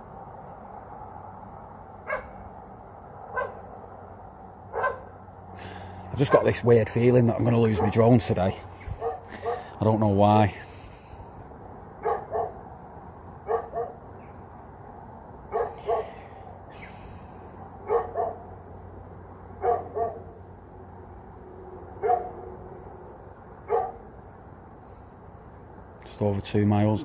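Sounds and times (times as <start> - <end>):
dog barking: 2.1 - 2.4, 3.3 - 3.6, 4.7 - 5.1, 7.6 - 8.1, 9.0 - 9.8, 12.0 - 12.6, 13.4 - 14.0, 15.5 - 16.3, 17.8 - 18.5, 19.6 - 20.4, 22.0 - 22.4, 23.7 - 24.0.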